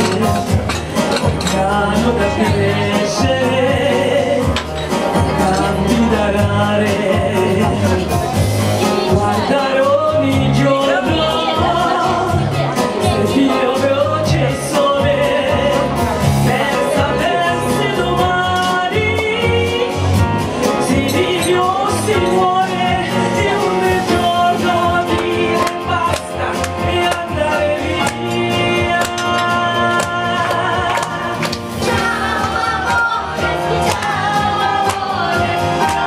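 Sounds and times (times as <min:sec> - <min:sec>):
electronic keyboard accompaniment: 0:00.0 - 0:36.0
woman singing through microphone: 0:08.9 - 0:20.1, 0:20.8 - 0:36.0.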